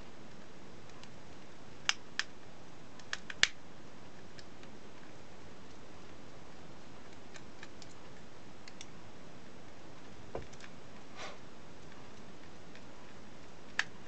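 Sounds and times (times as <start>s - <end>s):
steady background hiss: 0.0s - 14.0s
brief scrape: 11.2s - 11.4s.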